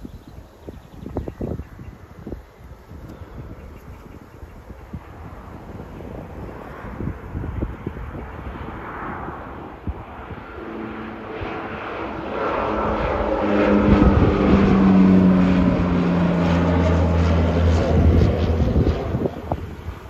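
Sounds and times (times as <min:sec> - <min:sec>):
turboprop engines droning: 0:00.0 - 0:20.0.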